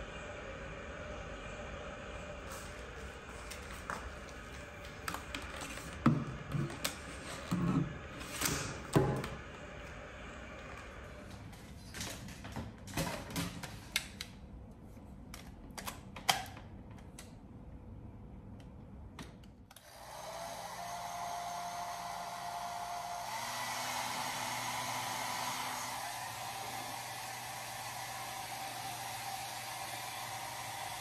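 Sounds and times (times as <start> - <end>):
hair dryer blowing: 19.8 - 31.0.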